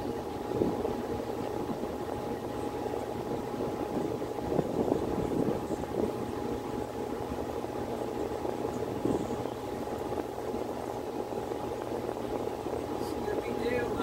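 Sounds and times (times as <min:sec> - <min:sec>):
constant hum: 0:00.0 - 0:14.0.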